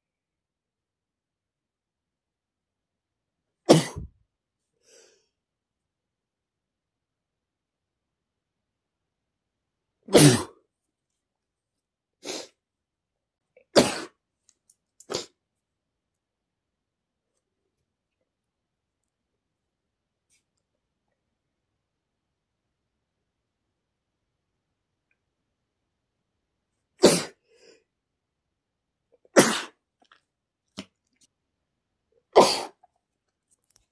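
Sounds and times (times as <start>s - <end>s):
man sneezing: 3.7s - 4.1s, 10.1s - 10.6s, 13.8s - 14.2s, 27.0s - 27.4s, 29.3s - 29.8s, 32.3s - 32.9s.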